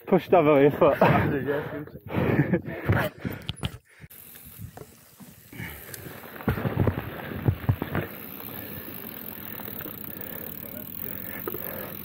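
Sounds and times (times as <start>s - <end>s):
mountain bike knocking and rattling: 2.3s - 12.0s
riding noise: 4.1s - 12.0s.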